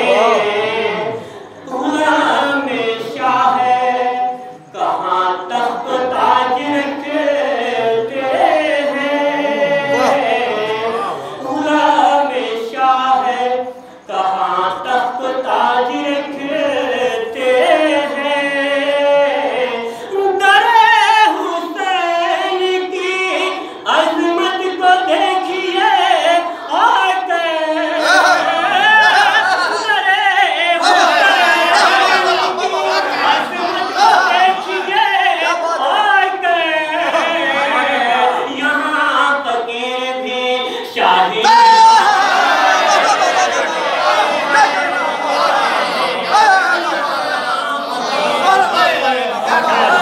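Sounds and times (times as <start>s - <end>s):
man singing into a microphone: 34.3s - 42.1s.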